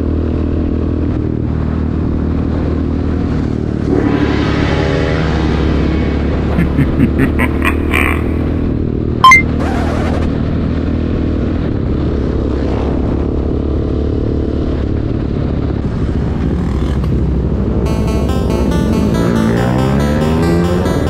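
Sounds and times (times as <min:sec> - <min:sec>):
background music: 0:17.9 - 0:21.0.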